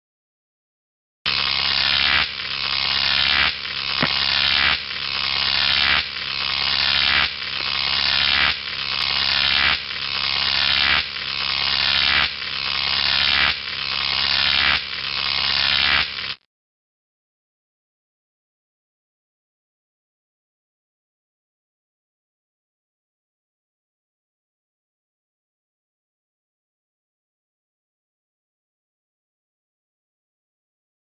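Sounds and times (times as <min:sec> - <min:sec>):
electric buzz and crackle: 0:01.3 - 0:16.4.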